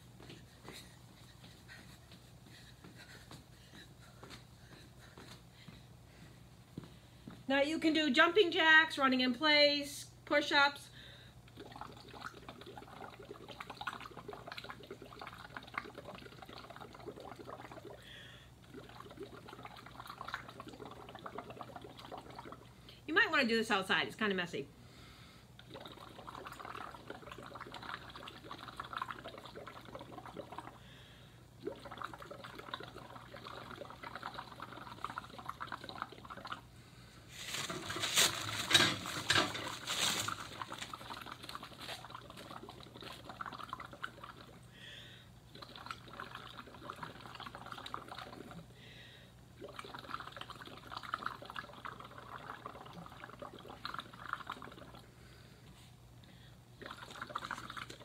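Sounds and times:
bubbling through a straw: 11.5s - 23.0s, 25.6s - 36.7s, 37.6s - 44.8s, 45.5s - 48.7s, 49.5s - 55.1s, 56.8s - 58.0s.

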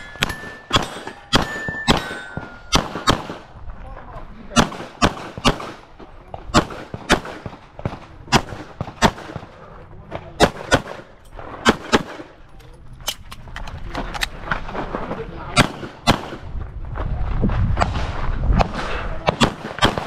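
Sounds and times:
pistol shots: 0.0s - 3.5s, 4.5s - 9.6s, 10.4s - 12.4s, 15.5s - 16.5s, 18.6s - 20.0s.

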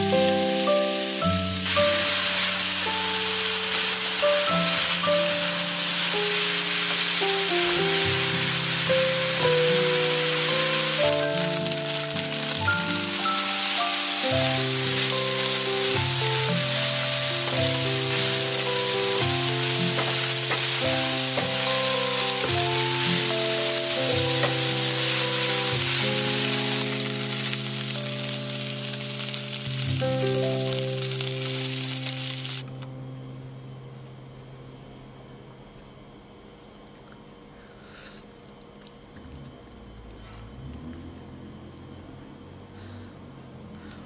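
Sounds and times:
noodles sizzling in frying pan: 0.0s - 32.7s
light instrumental music: 0.0s - 33.5s.

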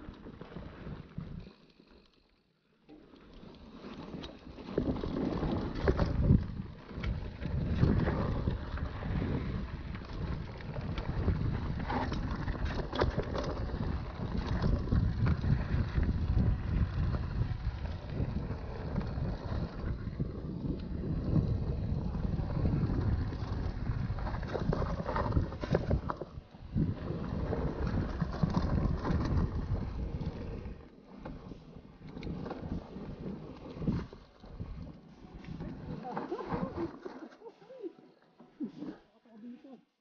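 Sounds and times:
bike clicking and rattling: 0.0s - 36.5s
bike tyres rumbling over rocks: 3.1s - 35.0s
wind buffeting microphone: 5.6s - 30.8s.

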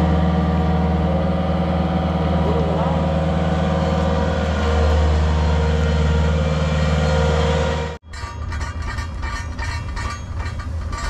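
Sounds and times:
heavy machine engine running: 0.0s - 11.0s
clattering and knocking: 8.0s - 11.0s.

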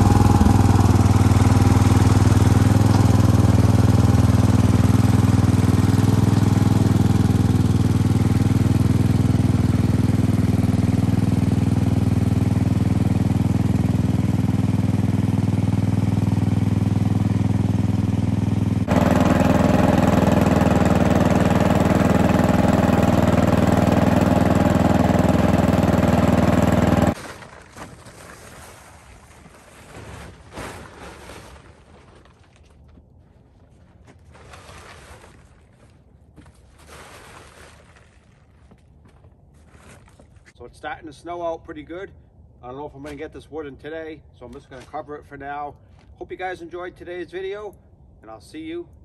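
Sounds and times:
tractor engine running: 0.0s - 27.2s.

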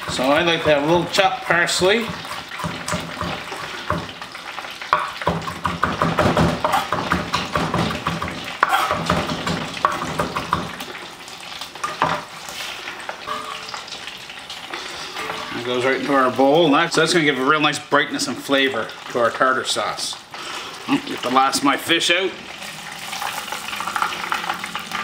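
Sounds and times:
fish deep-frying in oil: 0.0s - 25.0s
knife chopping on wooden board: 5.0s - 10.7s.

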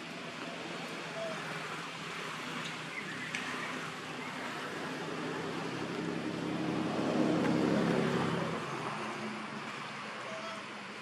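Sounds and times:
motor vehicle passing by: 0.1s - 11.0s.

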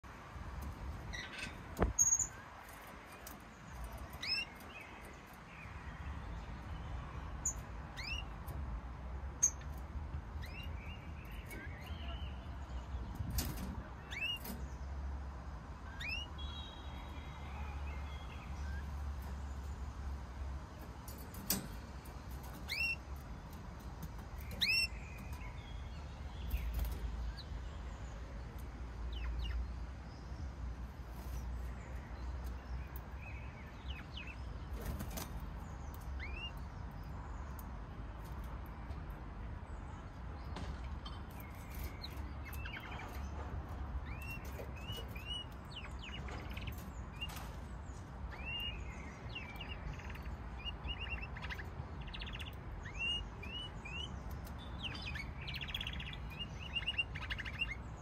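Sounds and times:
canary chirping: 0.7s - 38.8s, 41.0s - 58.0s.

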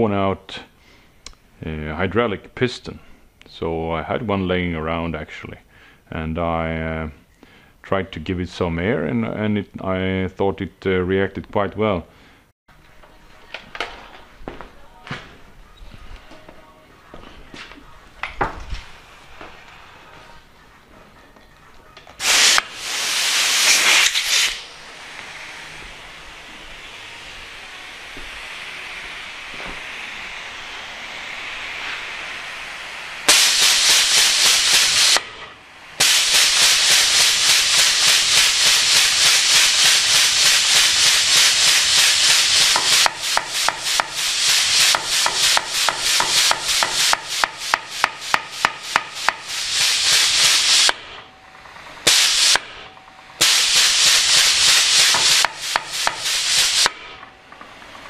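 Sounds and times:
pulsing compressed air hiss: 22.2s - 58.0s.

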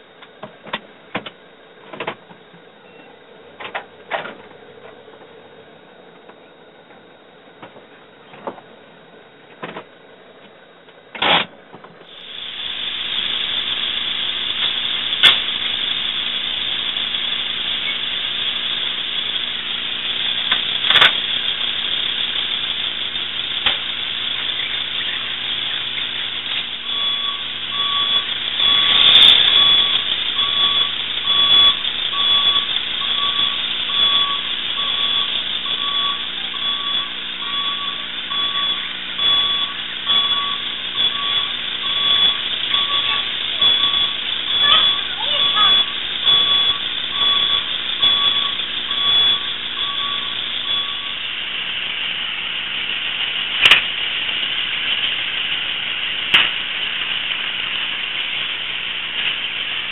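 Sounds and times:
vehicle engine hum: 0.0s - 59.9s
sharp clicks: 14.6s - 15.5s
two-pitched electronic beep: 23.5s - 51.2s.

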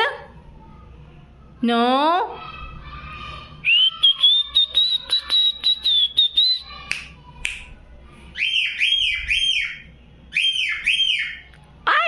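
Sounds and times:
cockatiel whistling: 3.7s - 6.8s.

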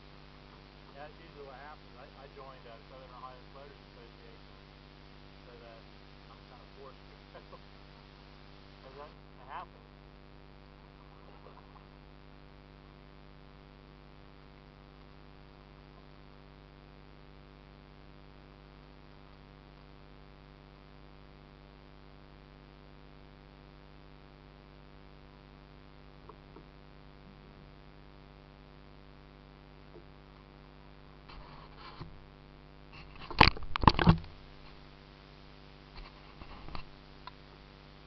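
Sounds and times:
faint hiss: 0.0s - 33.5s, 34.2s - 38.0s
electrical hum: 0.0s - 38.0s
faint ticks: 14.4s - 15.2s, 19.1s - 19.5s, 26.2s - 27.7s, 35.9s - 37.7s.

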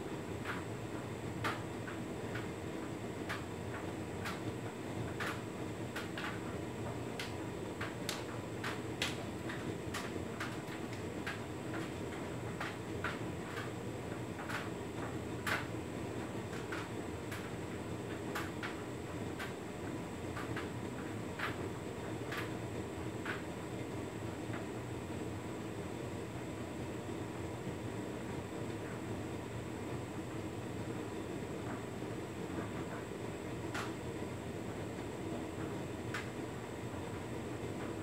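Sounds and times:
load tumbling clicks and taps: 0.4s - 2.6s, 3.2s - 22.6s.

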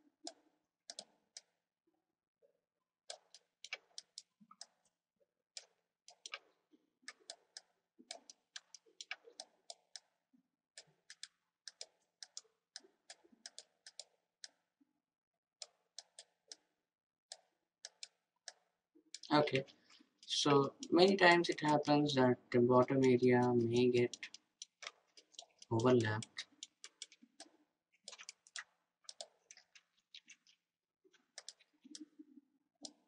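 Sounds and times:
computer mouse clicking: 0.3s - 1.5s, 3.1s - 4.9s, 5.6s - 6.5s, 7.1s - 10.1s, 10.8s - 14.6s, 15.6s - 16.7s, 17.3s - 22.0s, 23.0s - 30.6s, 31.2s - 32.2s.

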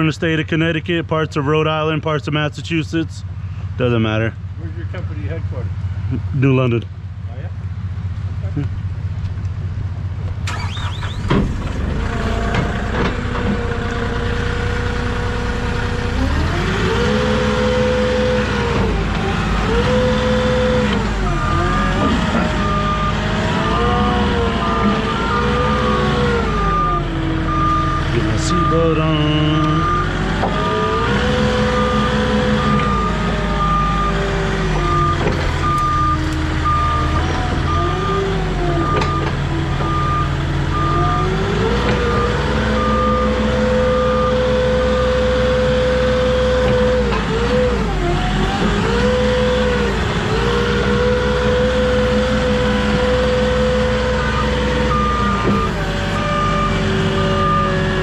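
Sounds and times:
forklift engine revving: 8.4s - 58.0s
reversing beeper: 10.5s - 11.3s, 19.6s - 45.6s, 53.1s - 58.0s.

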